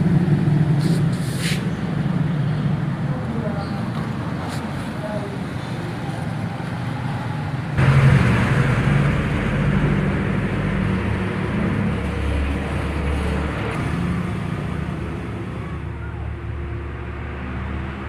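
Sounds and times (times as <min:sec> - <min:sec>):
low engine rumble with hiss: 0:00.1 - 0:06.3.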